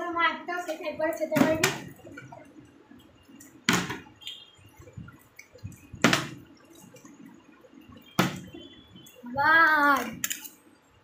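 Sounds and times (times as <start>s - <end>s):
plastic bottle thudding on tile floor: 3.7s - 4.1s.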